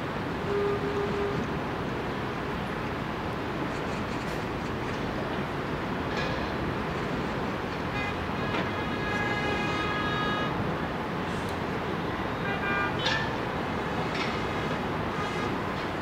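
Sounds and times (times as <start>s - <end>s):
city traffic: 0.0s - 16.0s
passing train rumble: 0.0s - 16.0s
horn sounding: 0.5s - 1.4s.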